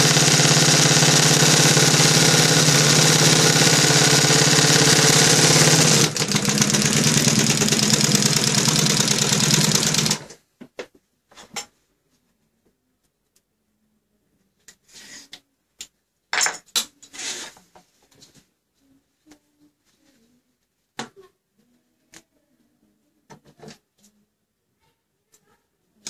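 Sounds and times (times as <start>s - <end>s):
embroidery machine stitching: 0.0s - 10.4s.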